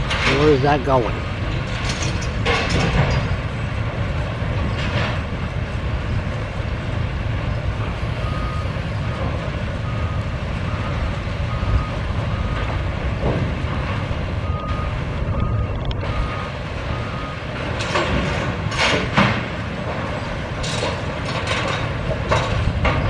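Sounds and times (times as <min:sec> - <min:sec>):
machinery clatter: 0:00.0 - 0:23.0
machinery rumble: 0:00.0 - 0:23.0
warning alarm beeps: 0:07.9 - 0:12.7.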